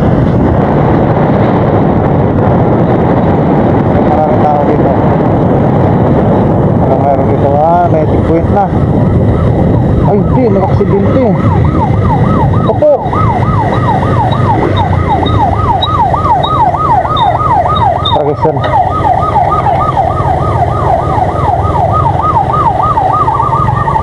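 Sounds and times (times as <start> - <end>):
motorcycle engine rumble: 0.0 - 24.0
wind: 0.0 - 24.0
electronic siren yelp: 9.1 - 24.0.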